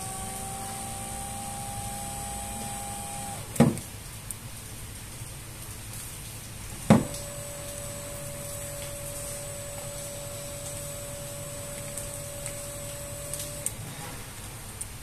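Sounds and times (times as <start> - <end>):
small motor whining: 0.0 - 3.8, 6.9 - 13.9.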